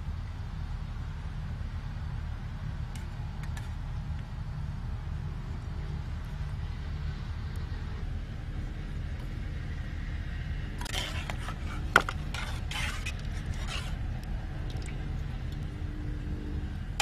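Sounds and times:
steady low rumble: 0:00.0 - 0:17.0
metal ladle scraping a tray: 0:10.8 - 0:14.0.

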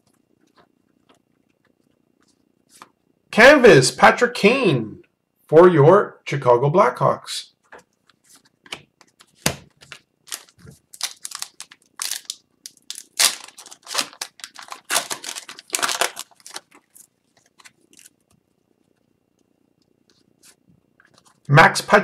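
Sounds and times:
cards handled rustling: 0:07.7 - 0:19.0
wrapper crinkling and tearing: 0:09.8 - 0:18.3.

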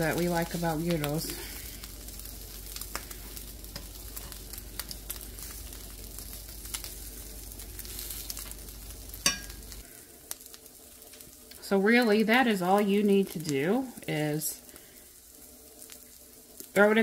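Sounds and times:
fat popping and crackling: 0:00.0 - 0:12.1
meat sizzling in a pan: 0:00.0 - 0:17.0.

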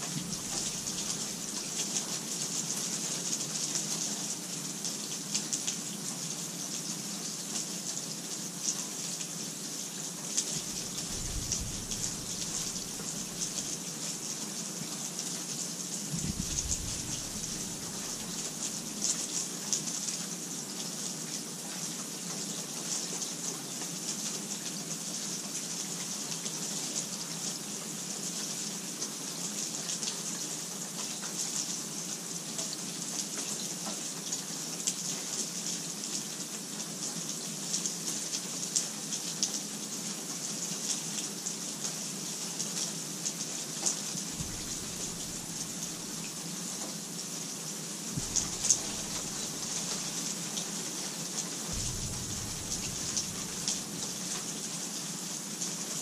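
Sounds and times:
faint low rumble: 0:00.0 - 0:01.5, 0:10.6 - 0:13.8, 0:16.1 - 0:18.9, 0:44.4 - 0:46.3, 0:48.2 - 0:50.2, 0:51.7 - 0:54.1
rain falling: 0:00.0 - 0:56.0.

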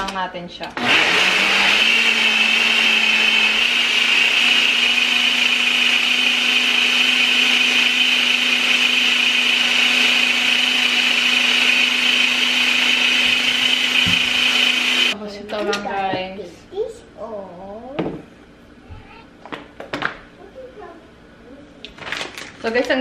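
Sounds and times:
blender motor whirring: 0:00.7 - 0:15.2.

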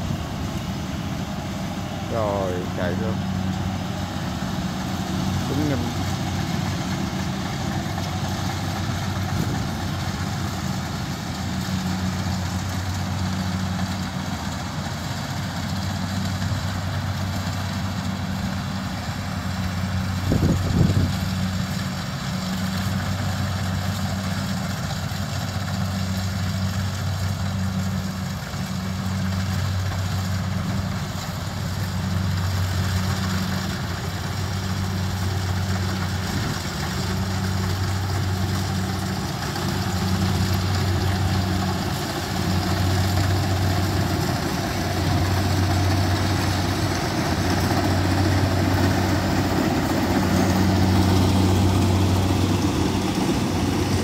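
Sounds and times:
combine harvester engines humming: 0:00.0 - 0:54.0.

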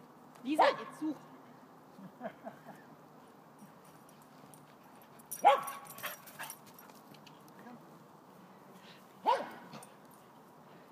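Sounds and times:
dog barking: 0:05.4 - 0:05.8, 0:09.2 - 0:09.8.

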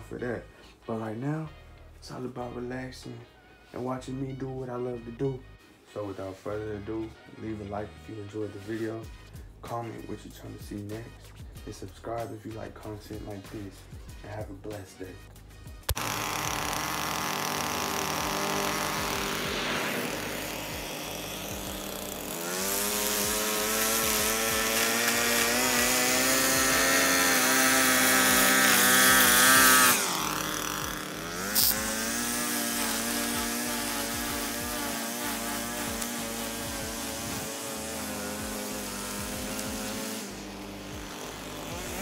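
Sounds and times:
string trimmer engine revving: 0:15.8 - 0:42.0.

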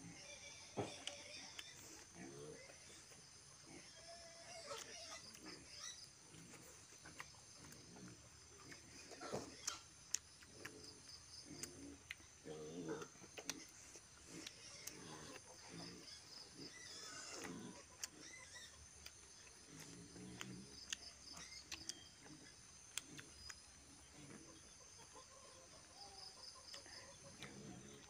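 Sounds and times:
chewing and lip-smacking: 0:01.0 - 0:03.2, 0:04.7 - 0:24.4, 0:26.2 - 0:28.0
wet mouth clicks: 0:13.0 - 0:15.4, 0:19.0 - 0:23.6.

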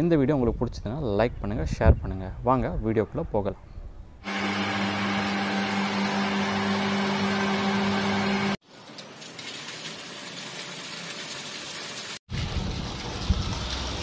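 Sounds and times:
water pump motor humming: 0:04.2 - 0:08.6
water gushing from tap: 0:08.9 - 0:14.0.

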